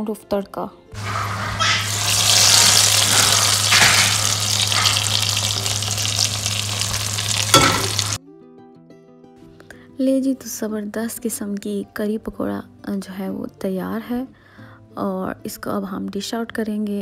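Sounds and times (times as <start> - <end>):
hot oil sizzling in a pot: 1.0 - 8.2.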